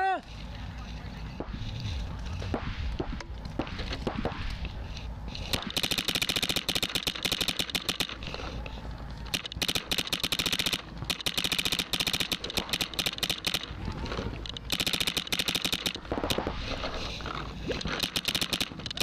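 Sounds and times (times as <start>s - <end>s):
paintball marker rapid firing: 5.5s - 8.4s, 9.3s - 13.8s, 14.6s - 16.6s, 17.8s - 19.0s.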